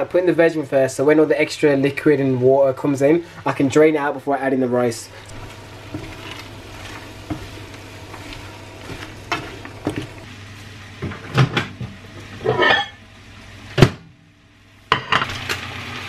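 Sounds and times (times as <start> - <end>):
steady low hum: 1.2 - 13.4
pans and utensils clattering: 11.0 - 13.0.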